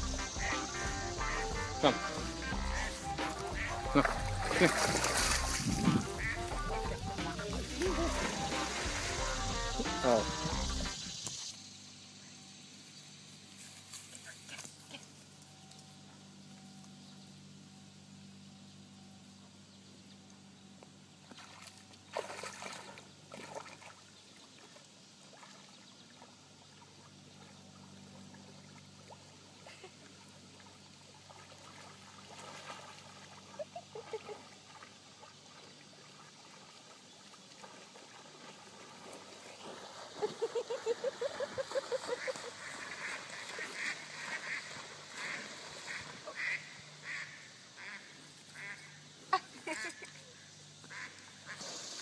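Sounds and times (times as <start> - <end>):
low steady hum: 0.0 - 24.6
light water sounds: 1.8 - 11.6, 20.1 - 52.0.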